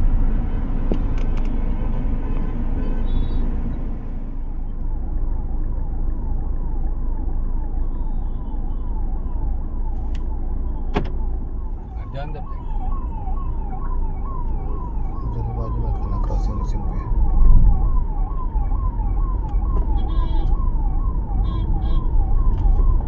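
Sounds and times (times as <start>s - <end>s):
street traffic rumble: 0.0s - 23.0s
electronic vehicle siren: 4.6s - 23.0s.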